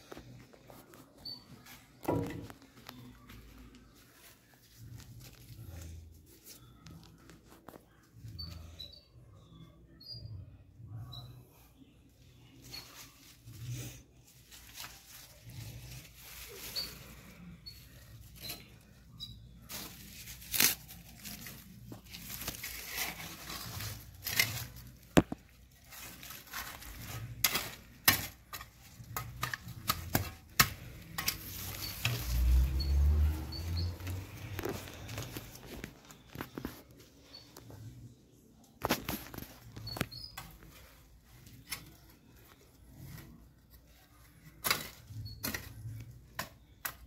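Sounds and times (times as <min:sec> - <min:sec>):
soil and roots rustling by hand: 0:12.6 - 0:38.1.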